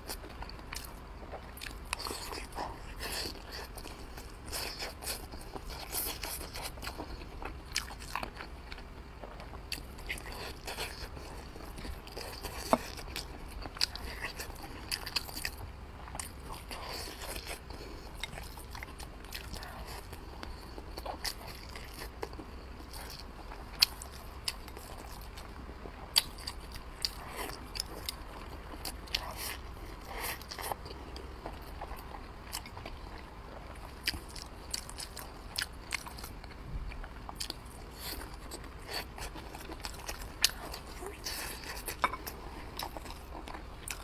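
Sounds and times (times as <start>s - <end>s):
chewing and biting food: 0.0s - 44.0s.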